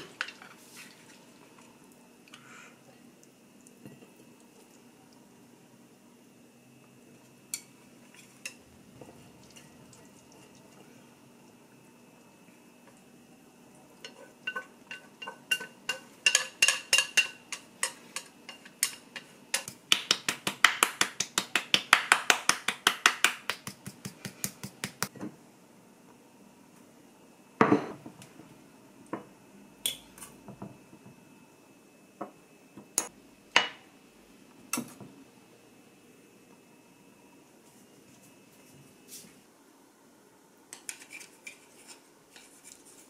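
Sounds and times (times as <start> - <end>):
utensil clinking against ringing bowl: 14.0 - 19.7.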